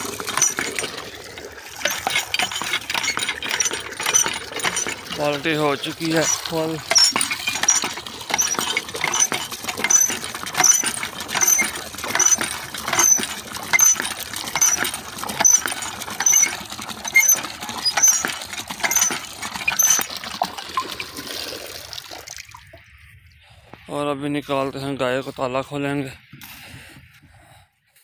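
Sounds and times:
hand pump squeaking: 0.0 - 21.1
water gushing into a bucket: 0.0 - 23.0.

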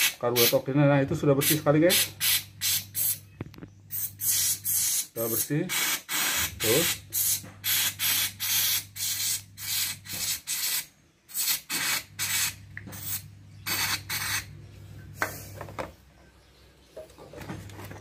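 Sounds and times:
aerosol spray hissing: 1.4 - 3.2, 3.9 - 14.5.

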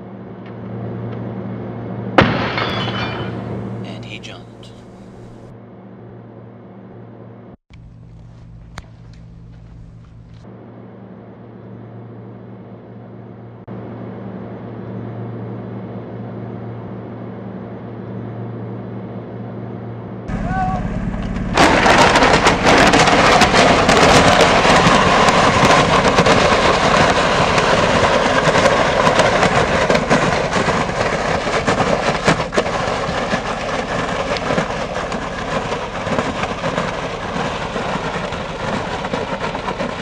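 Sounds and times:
riding lawn mower engine: 7.7 - 10.4, 20.3 - 40.0
object scraping over gravel: 21.4 - 40.0.

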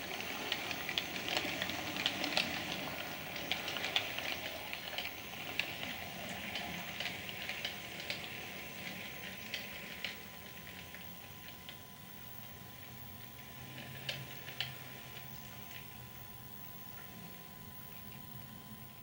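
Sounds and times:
model train wheels clicking: 0.0 - 19.0
steady hiss: 0.0 - 19.0.

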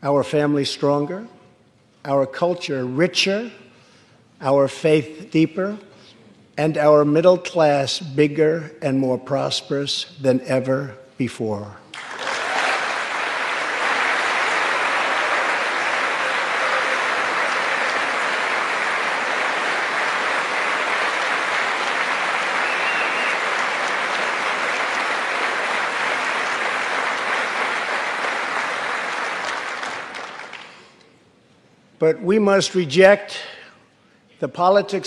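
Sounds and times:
crowd applauding: 11.9 - 31.0.

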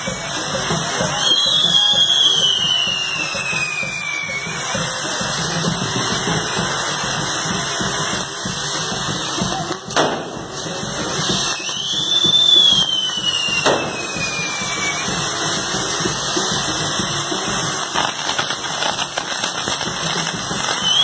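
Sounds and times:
firework wheel whistling shrilly: 0.0 - 21.0
steady firework hiss: 0.0 - 21.0
sharp firework pop: 9.8 - 10.6, 12.8 - 15.2.

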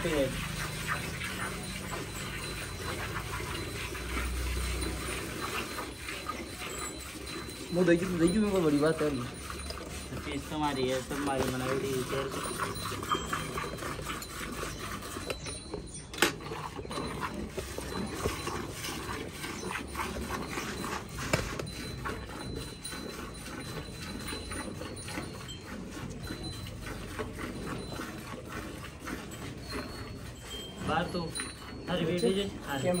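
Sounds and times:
milk squirting into steel bucket: 0.0 - 15.5.

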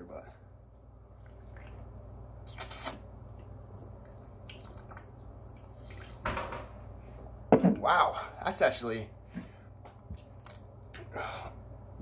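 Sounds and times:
steady low hum: 0.0 - 12.0
person slurping from a can: 2.5 - 3.0.

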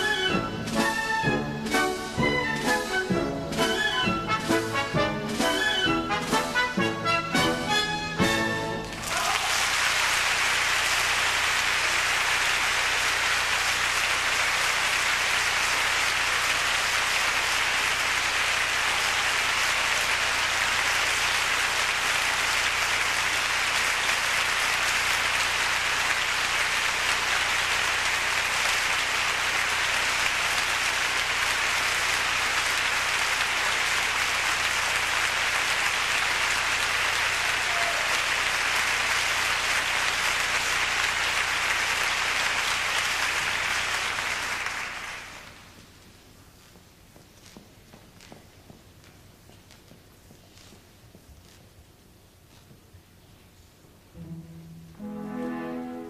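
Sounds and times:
audience applauding: 8.4 - 45.9.

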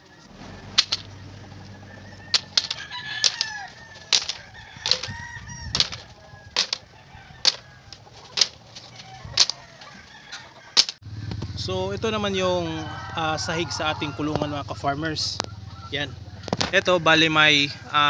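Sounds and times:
chickens clucking: 0.0 - 11.0, 13.1 - 18.0.

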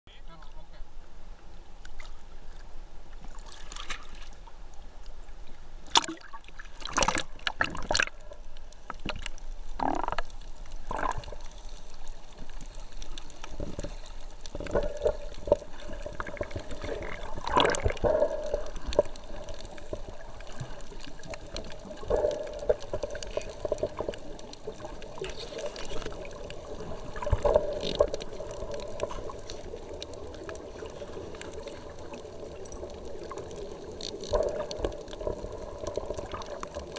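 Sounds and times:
water splashing and sloshing: 1.8 - 36.9
underwater bubble bursts: 5.9 - 8.5, 9.1 - 11.5, 12.6 - 36.9
muffled underwater sound: 12.7 - 36.9.

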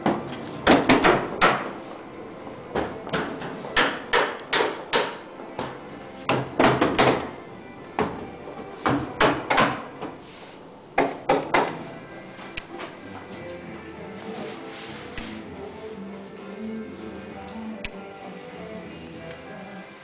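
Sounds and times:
sharp wooden knocks: 0.1 - 1.7, 3.8 - 7.3, 8.8 - 9.9, 11.0 - 11.8.

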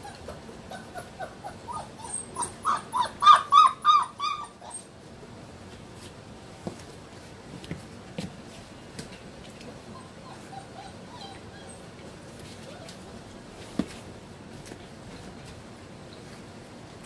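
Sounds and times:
puppy whining: 0.0 - 5.0, 9.6 - 13.2.

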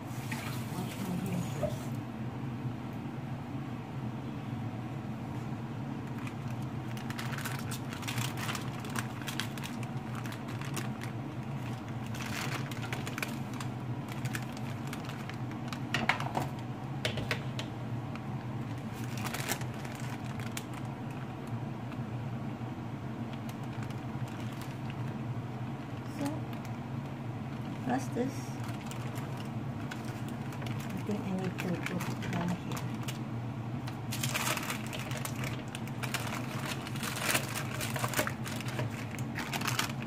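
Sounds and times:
steady low hum: 0.0 - 40.0
baking paper crinkling: 6.0 - 16.7, 18.1 - 22.1, 23.2 - 40.0.

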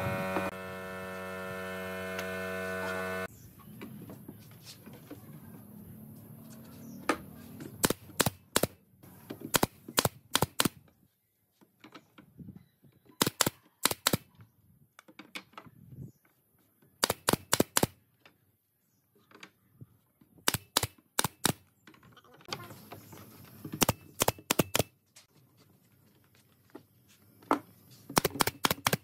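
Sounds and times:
nail gun firing: 7.8 - 8.8, 9.5 - 10.8, 13.2 - 14.3, 17.0 - 18.0, 20.4 - 21.6, 23.8 - 24.9, 28.1 - 29.0.

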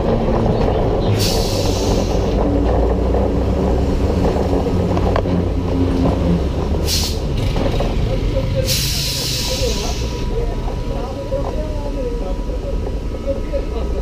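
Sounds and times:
tram wheels rumbling on rails: 0.0 - 14.0
air hiss: 6.9 - 7.2.

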